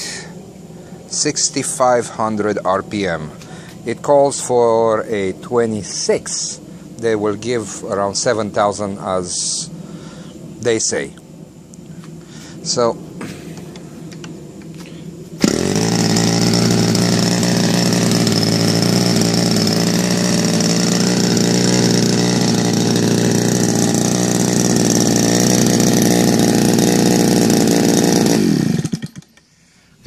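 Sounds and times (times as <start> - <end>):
model aircraft engine running: 12.0 - 29.5.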